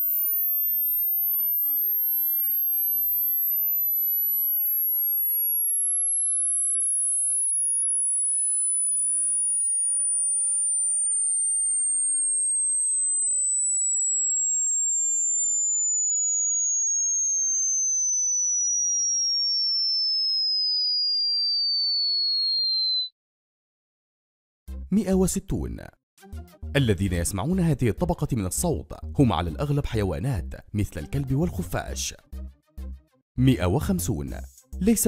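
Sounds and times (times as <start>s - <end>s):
sine tone sweeping downward: 0.0s - 23.1s.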